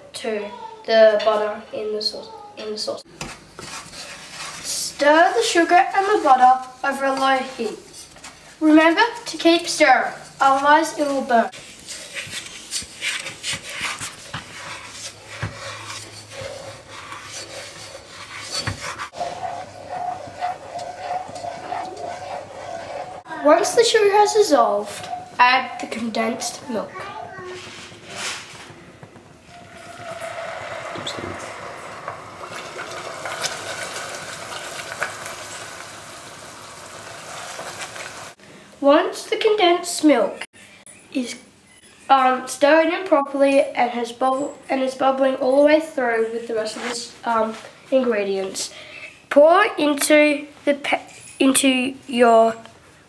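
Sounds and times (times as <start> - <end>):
spoon scraping a saucepan: 10.0 - 25.9, 29.5 - 33.9.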